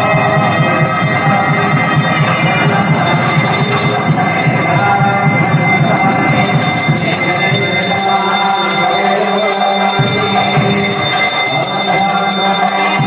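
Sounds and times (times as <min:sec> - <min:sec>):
pulsing low beat: 0:00.0 - 0:08.6, 0:09.5 - 0:12.4
bells ringing rapidly: 0:00.0 - 0:13.0.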